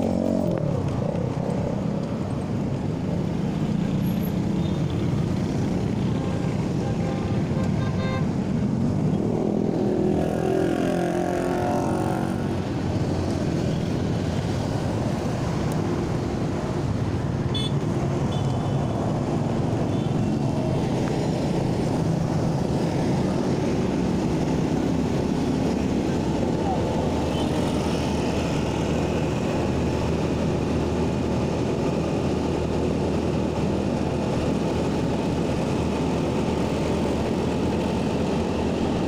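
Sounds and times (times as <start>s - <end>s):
road traffic noise: 0.0s - 39.0s.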